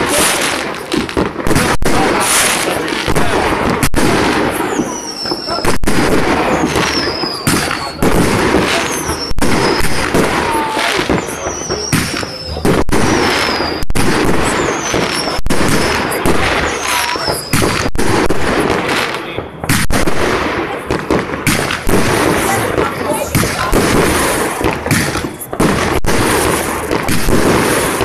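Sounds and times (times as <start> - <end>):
fireworks bursting with sharp bangs: 0.0 - 28.0
fireworks crackle: 0.0 - 28.0
high whistles falling in pitch: 4.6 - 5.8, 6.4 - 16.0, 16.6 - 17.9.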